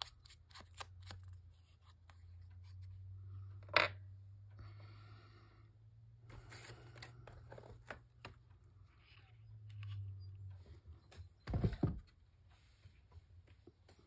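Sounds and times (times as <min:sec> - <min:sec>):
paper rustling: 0:06.3 - 0:08.4.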